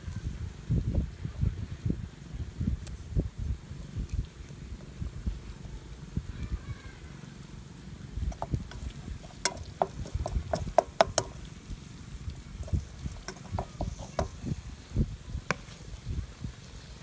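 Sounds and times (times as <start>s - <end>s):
objects clicking and knocking: 8.3s - 11.4s, 12.6s - 14.5s.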